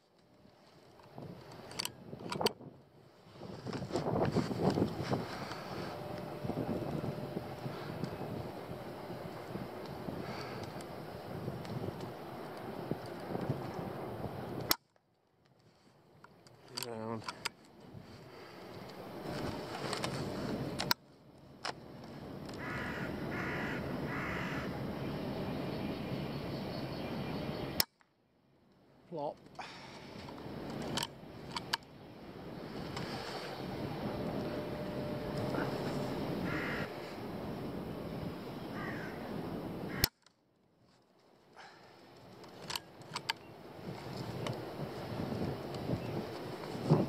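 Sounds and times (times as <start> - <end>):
steady background noise: 0.0 - 47.0
crow cawing: 22.6 - 24.8, 36.4 - 37.2, 38.7 - 39.3, 39.9 - 40.1
bird calls: 22.6 - 27.8, 35.4 - 37.2
sharp clicks: 30.2 - 31.9, 40.0 - 40.4, 42.2 - 43.5.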